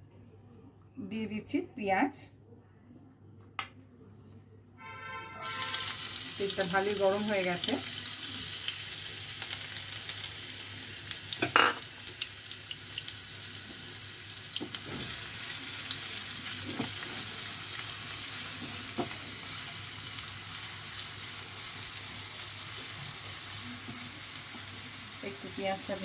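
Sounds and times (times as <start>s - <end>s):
onion sizzling in hot oil: 5.4s - 26.0s.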